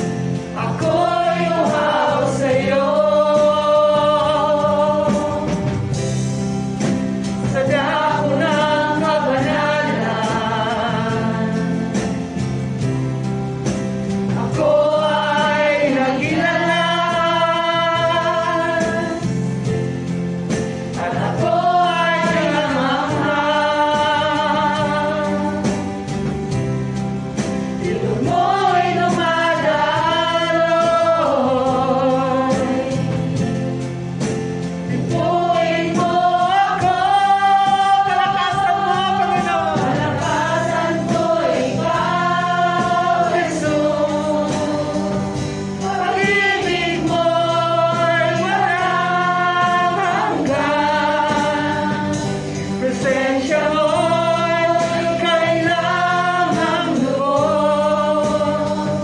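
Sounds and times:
gospel worship song: 0.0s - 59.0s.

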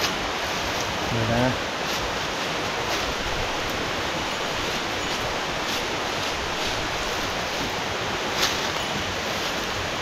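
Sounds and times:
steady rushing hiss: 0.0s - 10.0s.

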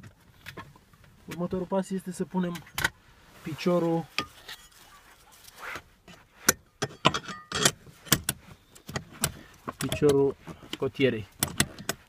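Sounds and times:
metal bracket rustling: 4.0s - 10.3s
metal bracket clinking: 6.8s - 7.8s.

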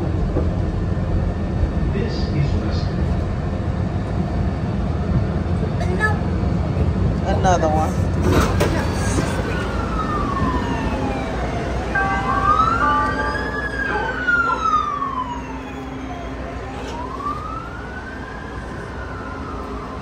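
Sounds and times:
low rumble of city traffic: 0.0s - 20.0s
emergency siren wailing: 9.2s - 20.0s.

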